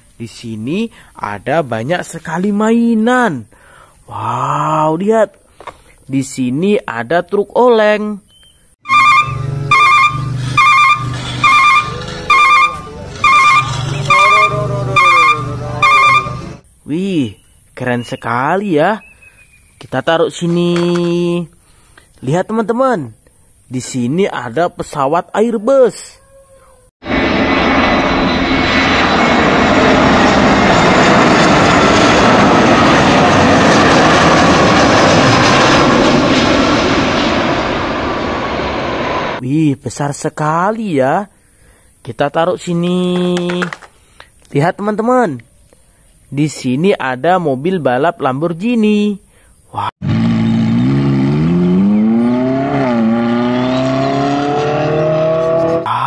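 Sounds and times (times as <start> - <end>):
faint engine whine: 8.4 - 17.8, 27.1 - 39.4
jet engines roaring: 8.9 - 16.6, 27.0 - 39.4.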